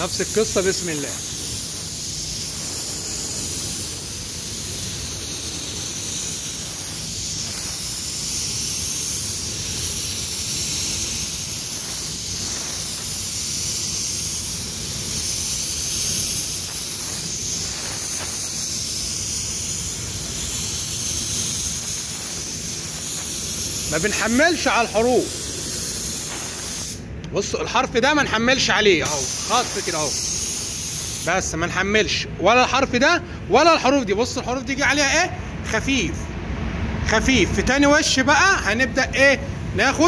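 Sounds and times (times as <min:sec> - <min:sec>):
spray gun hissing: 0:00.0 - 0:27.1, 0:29.0 - 0:31.5.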